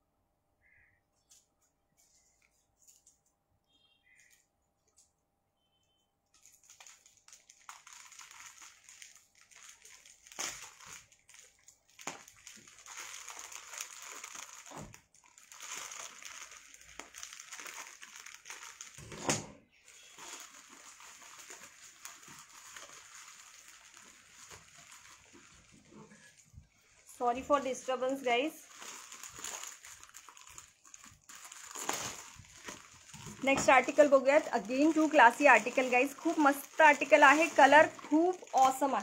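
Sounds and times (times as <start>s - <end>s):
rustling and handling noise: 1.2s - 3.6s, 6.3s - 19.2s, 19.8s - 39.0s
crinkles and knocks: 6.4s - 19.1s, 19.9s - 26.7s, 28.7s - 39.0s.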